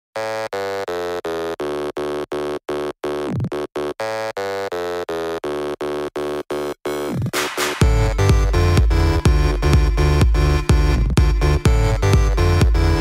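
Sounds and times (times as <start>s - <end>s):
pulsing synthesizer chord: 7.4s - 13.0s.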